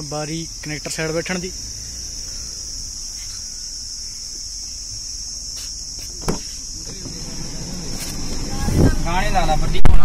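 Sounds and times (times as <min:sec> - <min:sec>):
crickets chirping: 0:00.0 - 0:10.0
short knock: 0:06.2 - 0:06.5.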